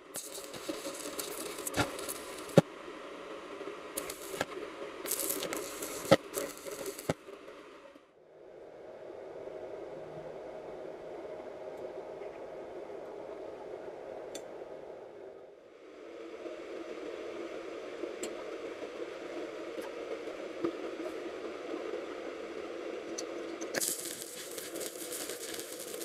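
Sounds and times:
welding arc crackling and popping: 0:00.0 - 0:02.6, 0:04.0 - 0:07.2, 0:23.7 - 0:26.0
steady low hum: 0:00.0 - 0:26.0.

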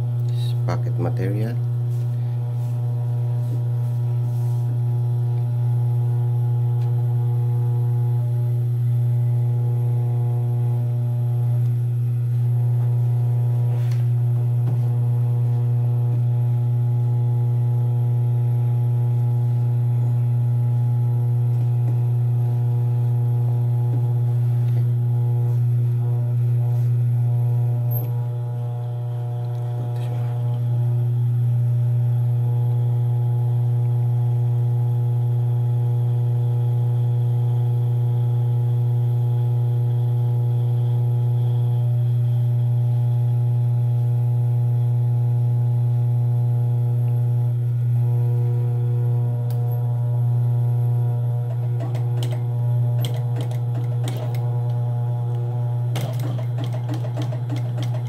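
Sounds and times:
sewing machine motor humming: 0:18.7 - 0:31.0, 0:48.0 - 0:58.0.

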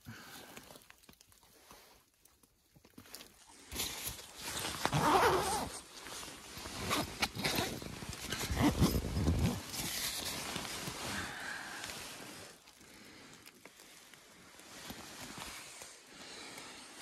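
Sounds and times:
sleeping bag rustling: 0:02.9 - 0:17.0
zipper being worked: 0:04.4 - 0:05.9, 0:06.5 - 0:10.4.

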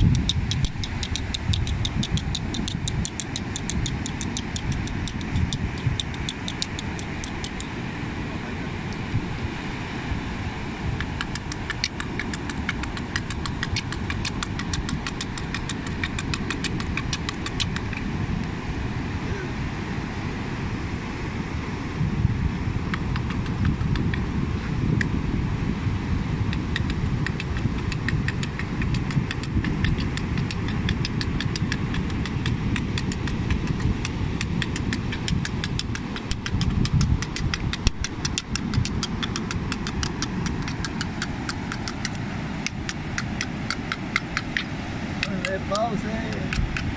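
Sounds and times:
small objects clicking in hands: 0:00.0 - 0:07.7, 0:11.0 - 0:18.0, 0:26.6 - 0:44.7
wind: 0:00.0 - 0:46.9
surf: 0:06.2 - 0:46.9.

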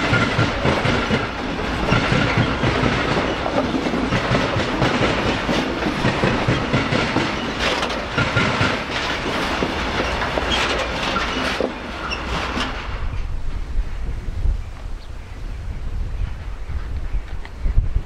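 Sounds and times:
freight wagon wheels clattering: 0:00.0 - 0:13.0.

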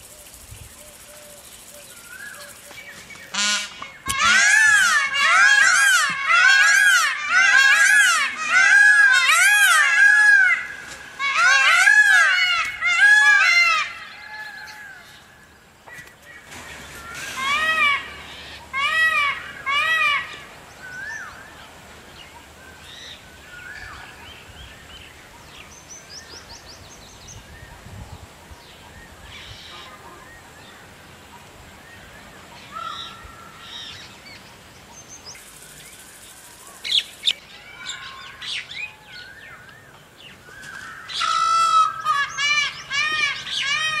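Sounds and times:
peafowl call: 0:00.0 - 0:21.6, 0:29.3 - 0:30.6, 0:32.6 - 0:34.4, 0:36.6 - 0:44.0.

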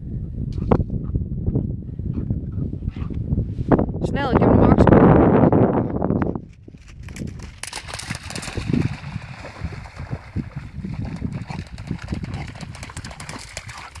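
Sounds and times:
dog splashing through water: 0:07.0 - 0:14.0.

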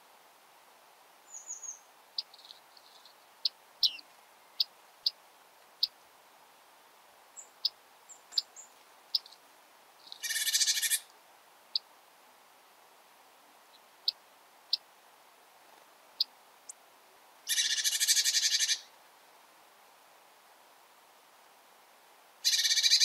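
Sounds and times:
birds making sharp high calls: 0:01.3 - 0:05.2, 0:10.0 - 0:11.1, 0:17.4 - 0:18.9, 0:22.4 - 0:23.0
harsh buzzy bird call: 0:10.2 - 0:11.1, 0:17.5 - 0:18.9, 0:22.4 - 0:23.0.

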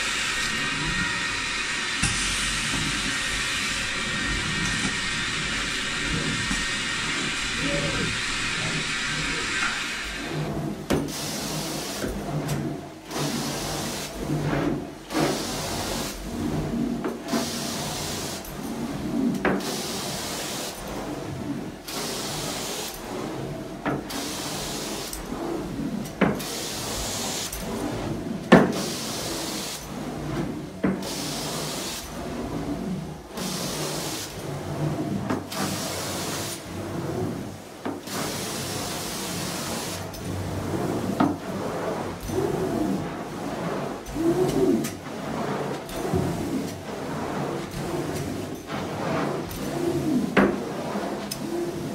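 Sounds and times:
spray and suction hissing: 0:00.0 - 0:12.4, 0:13.1 - 0:14.5, 0:15.1 - 0:16.2, 0:17.3 - 0:18.5, 0:19.6 - 0:21.0, 0:21.9 - 0:23.0, 0:24.1 - 0:25.3, 0:26.4 - 0:27.7, 0:28.7 - 0:29.9, 0:31.0 - 0:32.1, 0:33.4 - 0:34.3, 0:38.1 - 0:40.1
vacuum motors humming: 0:00.0 - 0:23.4.

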